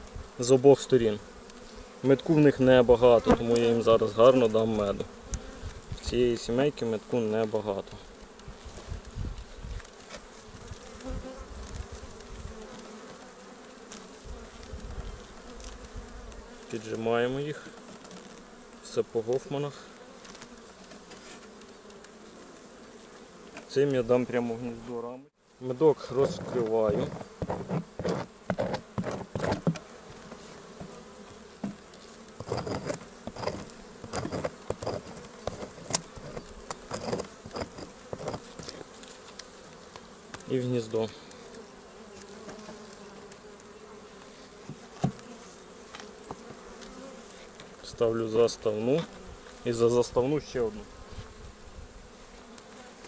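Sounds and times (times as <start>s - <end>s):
bees buzzing: 0.0s - 53.0s
knife scraping wax cappings: 26.0s - 47.8s.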